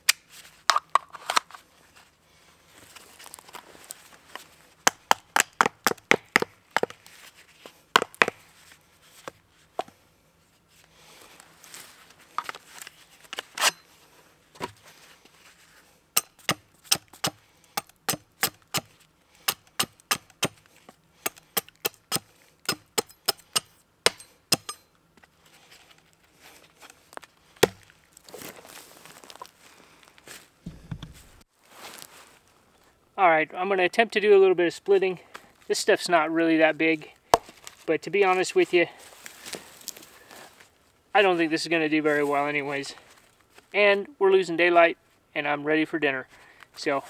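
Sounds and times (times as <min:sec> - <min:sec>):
axe chopping wood: 0:04.8 - 0:07.0, 0:08.0 - 0:08.4, 0:16.2 - 0:24.8, 0:27.6 - 0:27.9.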